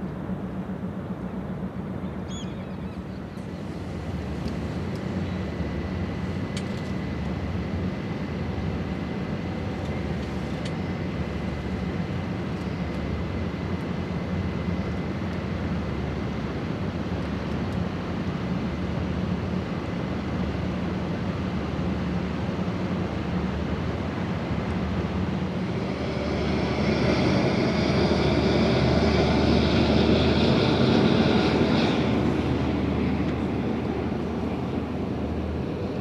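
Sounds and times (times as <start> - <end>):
ship diesel engines humming: 21.3 - 36.0.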